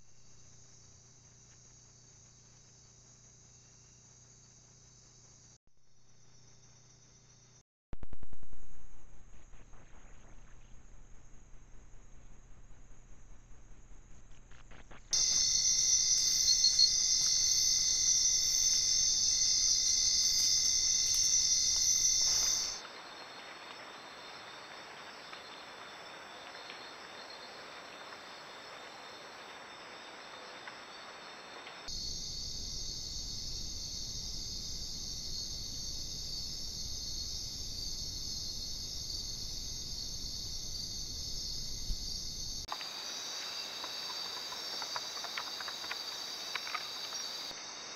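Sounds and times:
crickets chirping: 0.0s - 7.6s, 15.1s - 47.9s.

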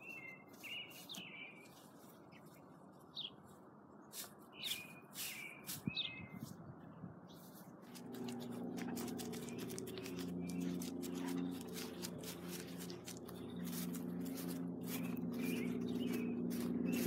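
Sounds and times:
light rustling ticks: 7.8s - 17.0s
music of sustained low chords: 8.0s - 17.0s.

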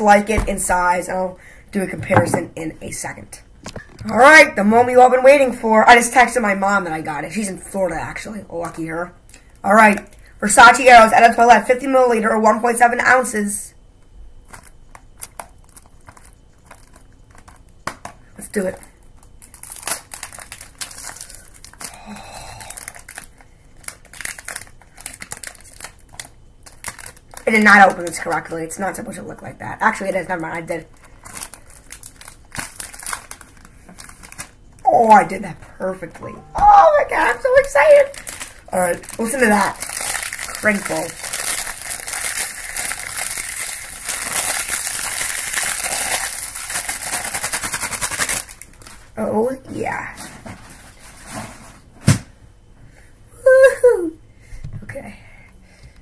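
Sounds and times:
cellophane wrap crinkling: 14.4s - 29.1s, 29.8s - 35.3s, 36.7s - 49.2s.

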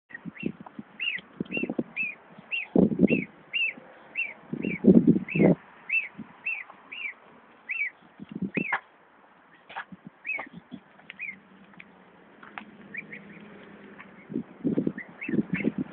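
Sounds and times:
gosling peeping: 0.1s - 8.9s, 9.5s - 11.4s, 12.6s - 15.9s.

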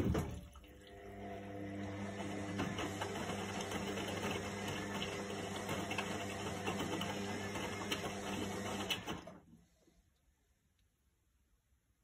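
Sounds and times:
washing machine humming and clattering: 0.0s - 9.6s.

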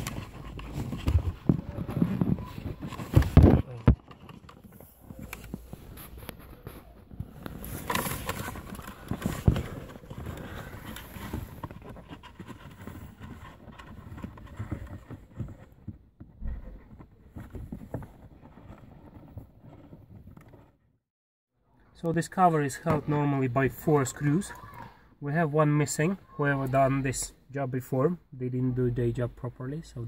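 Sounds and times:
scraping and rustling: 0.0s - 20.8s.

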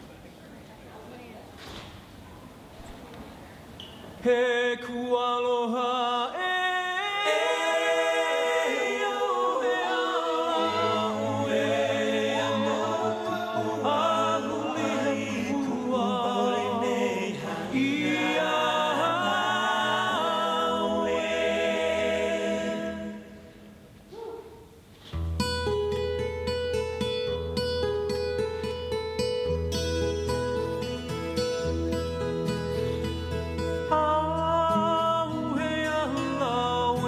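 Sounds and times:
voices singing in harmony: 4.2s - 24.0s, 33.9s - 37.0s.

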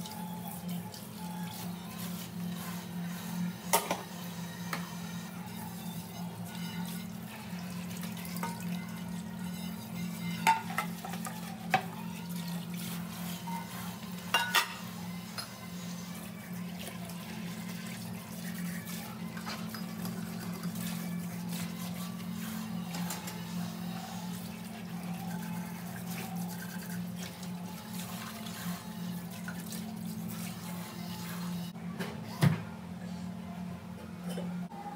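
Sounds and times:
dishes clinking: 10.2s - 11.9s, 14.2s - 15.6s, 34.2s - 34.6s.

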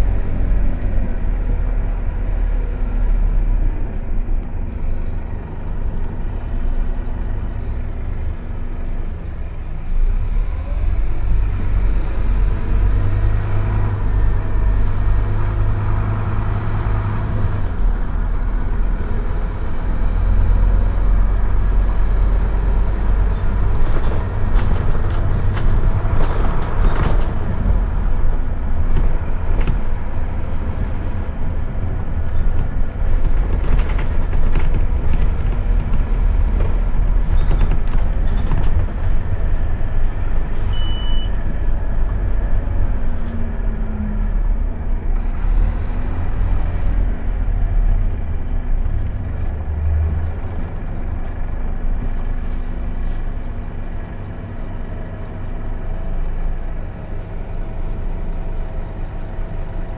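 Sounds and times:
bus engine and road noise: 0.0s - 59.9s
bodywork rattles and clicks: 23.7s - 40.7s.

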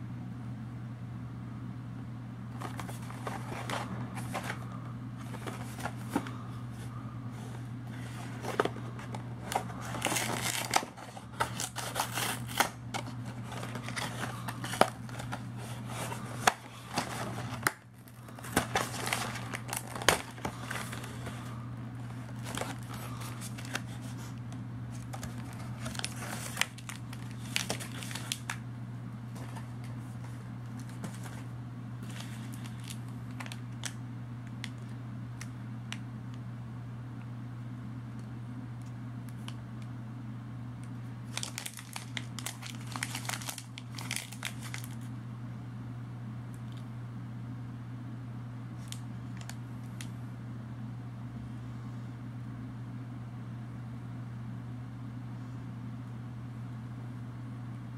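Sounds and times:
low hum: 0.0s - 57.9s
cardboard tearing and rustling: 2.6s - 6.4s, 7.9s - 28.6s, 29.3s - 33.9s, 41.3s - 45.0s
wrappers crinkling: 2.6s - 6.9s, 7.9s - 28.6s, 29.3s - 34.0s, 41.2s - 45.1s.

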